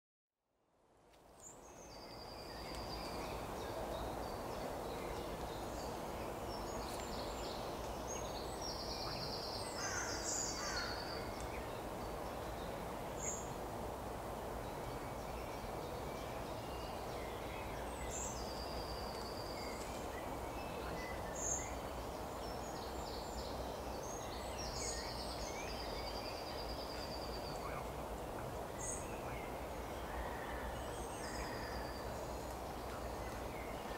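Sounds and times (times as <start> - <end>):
low rush of background noise: 0.6 - 33.9
small birds chirping: 14.7 - 33.9.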